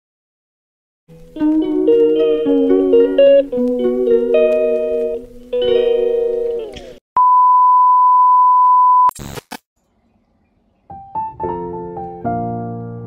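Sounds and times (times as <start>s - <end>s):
piano music: 1.1s - 6.8s, 10.8s - 13.0s
guitar music: 1.1s - 7.0s.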